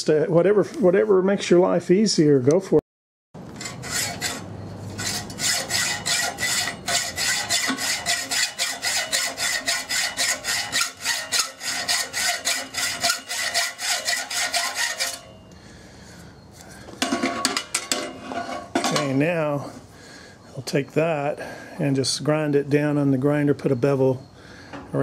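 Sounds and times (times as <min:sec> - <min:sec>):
hacksaw cutting metal bolt: 0:03.6 - 0:04.4, 0:05.0 - 0:15.3.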